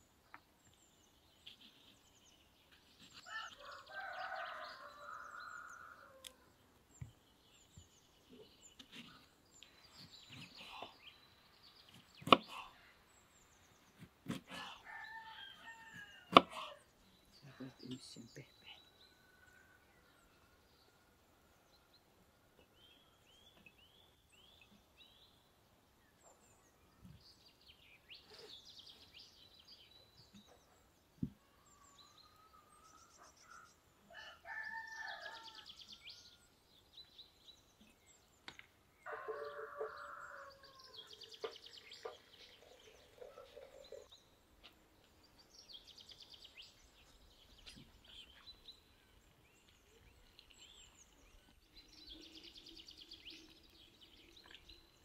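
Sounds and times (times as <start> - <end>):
small birds chirping: 0.0 - 20.9, 21.6 - 55.0
rooster crowing: 3.3 - 6.4, 34.1 - 35.8, 39.1 - 41.2.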